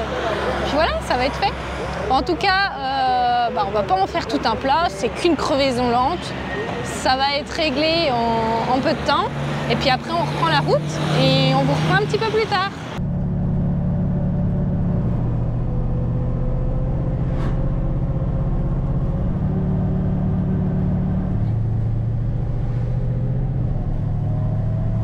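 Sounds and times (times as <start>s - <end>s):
truck engine drone from cab: 0.0s - 25.0s.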